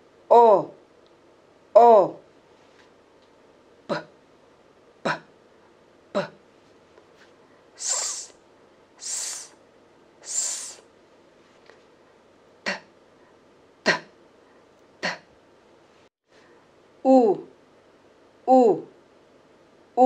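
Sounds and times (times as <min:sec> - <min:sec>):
woman pronouncing letter sounds: 0:00.3 - 0:00.8, 0:01.8 - 0:02.3, 0:03.9 - 0:04.2, 0:05.0 - 0:05.3, 0:06.1 - 0:06.4, 0:12.6 - 0:12.9, 0:13.8 - 0:14.2, 0:15.0 - 0:15.3, 0:17.0 - 0:17.6, 0:18.5 - 0:19.0.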